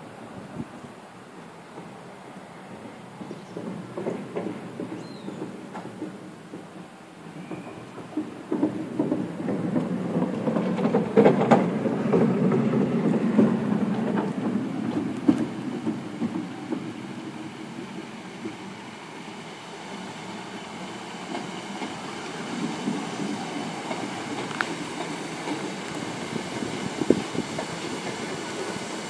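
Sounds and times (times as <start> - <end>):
train wheel and rail rumble: 0.0 - 29.0
clicks over rail joints: 1.4 - 18.8, 20.9 - 29.0.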